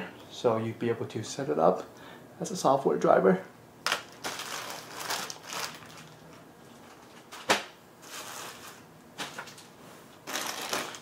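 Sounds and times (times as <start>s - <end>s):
packaging rustling: 3.9s - 11.0s.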